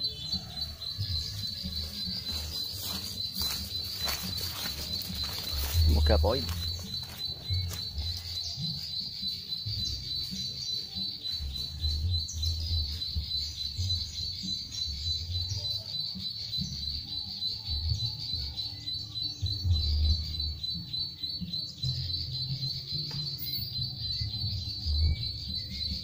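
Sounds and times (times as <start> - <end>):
buzzy bird trill from speaker: 0.0 - 26.0.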